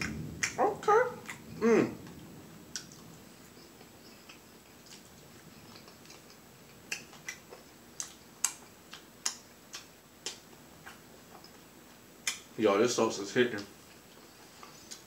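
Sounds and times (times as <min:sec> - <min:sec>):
wet mouth smacks: 0:05.8 - 0:11.5, 0:12.2 - 0:12.5.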